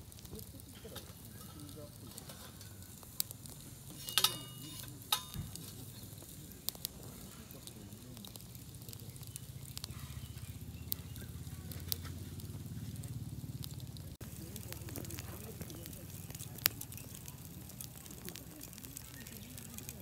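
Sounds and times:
firewood crackling: 0.0s - 20.0s
sharp pops and snaps: 4.9s - 20.0s.

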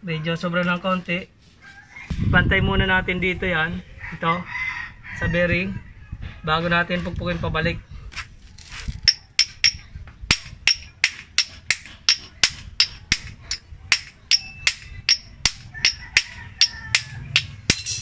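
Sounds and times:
hammer tapping metal: 9.1s - 18.0s.

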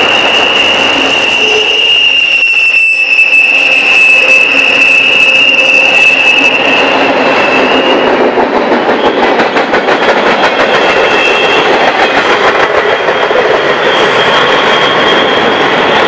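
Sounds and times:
train wheel squeal: 0.0s - 16.0s.

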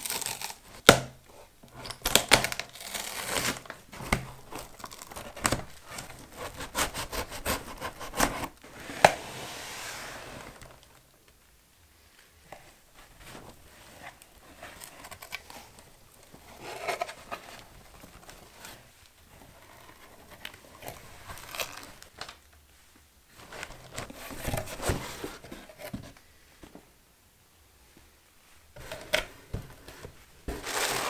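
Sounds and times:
cardboard scraping and rustling: 3.0s - 10.9s, 23.3s - 26.2s, 28.8s - 31.0s.

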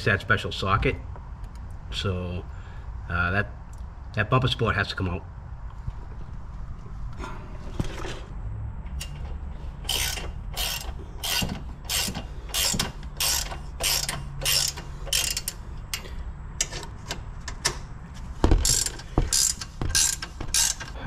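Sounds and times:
ratchet wrench clicking: 9.0s - 9.2s, 9.8s - 16.8s, 18.6s - 21.0s.

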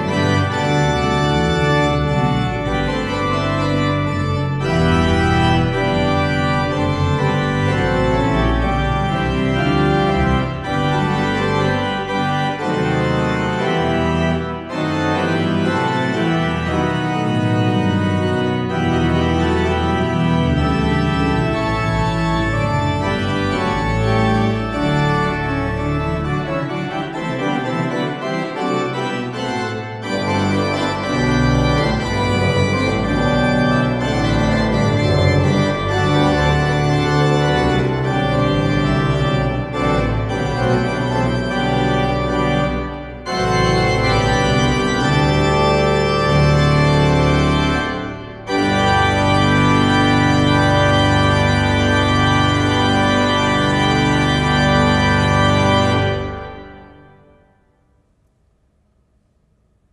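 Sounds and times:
deep organ pedal bass: 0.0s - 57.4s
pipe organ playing chords: 0.0s - 57.6s.

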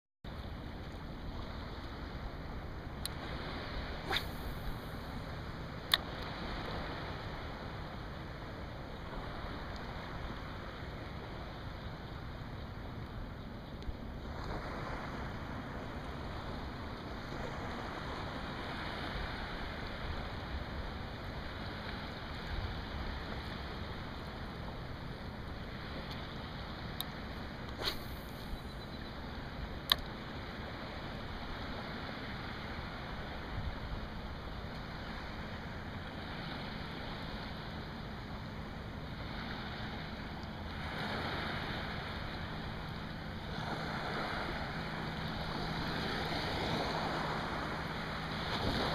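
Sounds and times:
wind: 0.2s - 48.9s
rippling water: 0.3s - 11.6s, 30.4s - 48.9s
sharp click: 29.9s - 30.1s
water lapping: 34.8s - 48.9s
wind rumbling on microphone: 39.1s - 48.9s.

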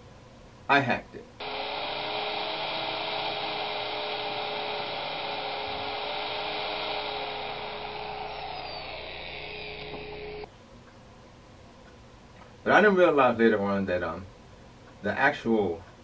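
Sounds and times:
steady mechanical whine: 1.4s - 10.5s.

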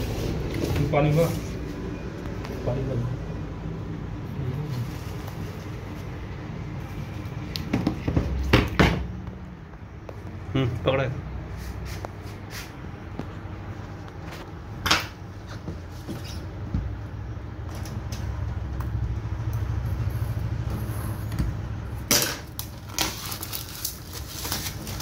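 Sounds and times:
steady low hum: 0.0s - 22.6s
plastic wrap crinkling: 22.3s - 25.0s.

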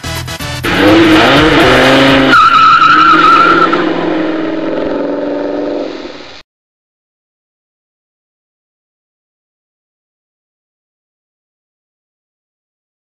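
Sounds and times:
car engine revving: 0.6s - 6.4s
tyres squealing: 1.1s - 3.8s.

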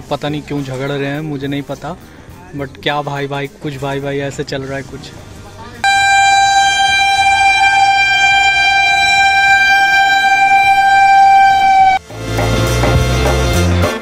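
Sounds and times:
train horn blast: 5.8s - 14.0s.

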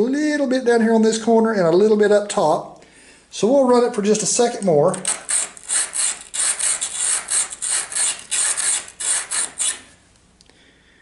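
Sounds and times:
bit rasping on sharpening stone: 5.0s - 9.8s.

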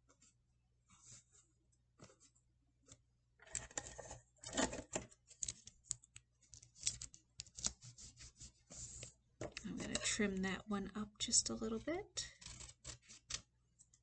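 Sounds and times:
paper and cardboard rustling: 6.5s - 9.2s.

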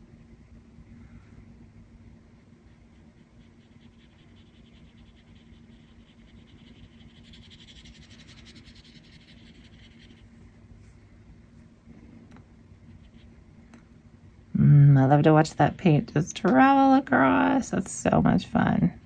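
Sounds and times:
steady low hum: 0.0s - 19.0s
brush scratching on paper: 2.6s - 11.0s, 12.9s - 13.4s.

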